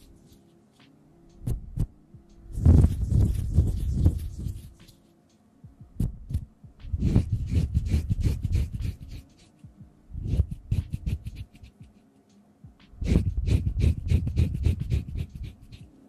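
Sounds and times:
hands rubbing against microphone: 2.6s - 5.1s, 6.0s - 12.2s.

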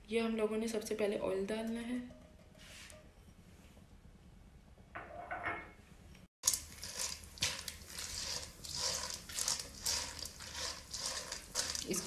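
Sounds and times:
popcorn kernels rattling in a pan: 6.4s - 12.0s.

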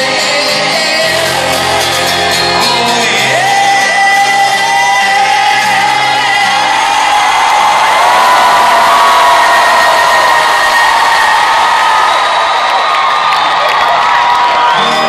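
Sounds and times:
live rock band playing: 0.0s - 6.9s, 14.6s - 15.0s
audience shouting: 1.2s - 15.0s.

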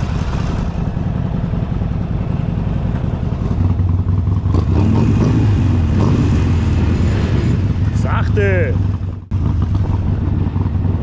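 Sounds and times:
motorcycle engine idling: 0.0s - 4.6s, 7.6s - 11.0s
second motorcycle engine: 0.0s - 11.0s.

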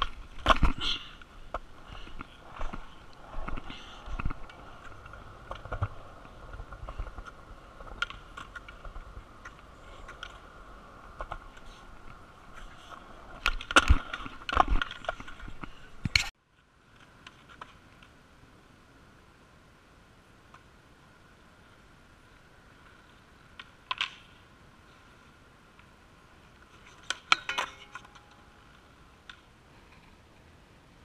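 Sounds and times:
skateboard cracks and slaps: 0.0s - 1.7s, 11.1s - 16.3s, 23.6s - 24.4s
skateboard wheels rolling on concrete: 0.0s - 31.0s.

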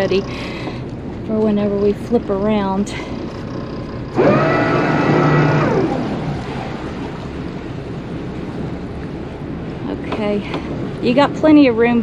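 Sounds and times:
background rumble: 0.0s - 12.0s
electric thruster whine: 3.4s - 7.5s.

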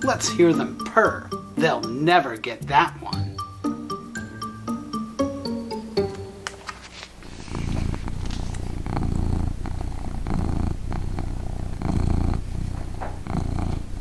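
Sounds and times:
book page turning: 6.4s - 8.8s
low rattling purr: 7.2s - 14.0s.

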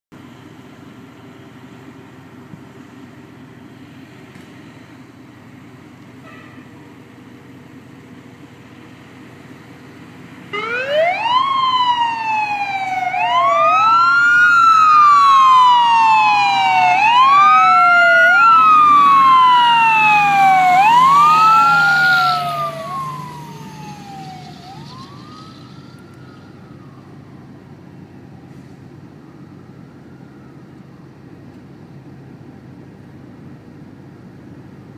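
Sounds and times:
fire truck siren wailing: 8.2s - 32.8s.

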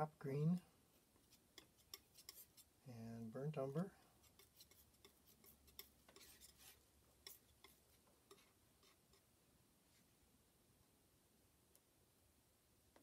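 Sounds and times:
palette knife mixing paint: 0.4s - 2.8s, 3.5s - 9.4s.

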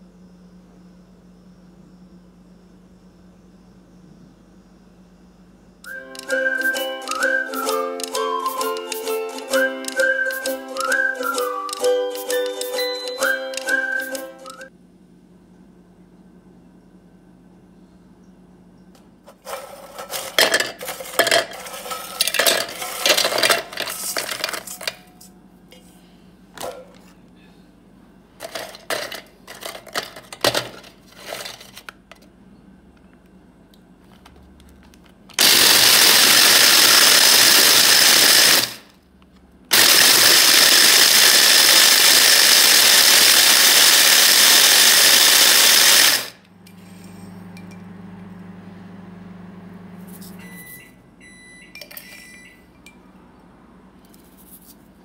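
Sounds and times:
low steady hum: 0.0s - 6.0s
electric mini chopper grinding: 19.5s - 25.0s, 35.4s - 38.9s, 39.7s - 48.0s.

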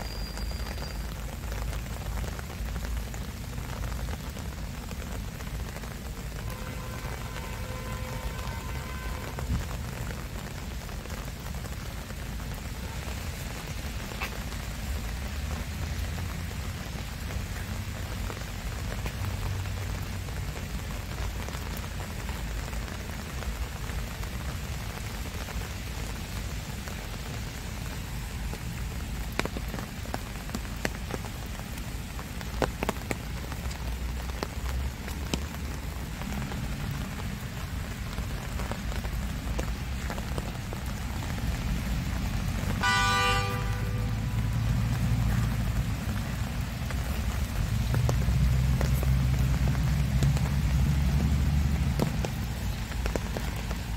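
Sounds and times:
rain on foliage: 0.0s - 53.9s
water dripping: 26.6s - 53.9s.

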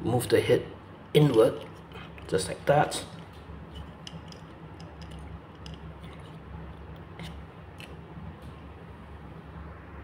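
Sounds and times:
plastic toy parts clicking: 4.0s - 6.3s.

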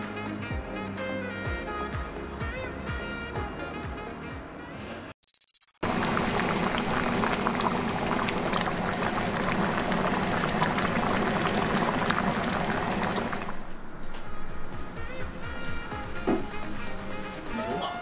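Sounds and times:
stew bubbling and popping: 5.8s - 13.7s.

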